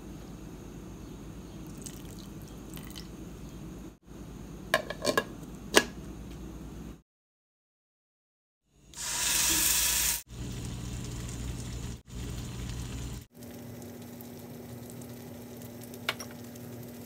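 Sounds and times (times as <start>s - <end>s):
kitchenware clinking: 4.8s - 5.9s.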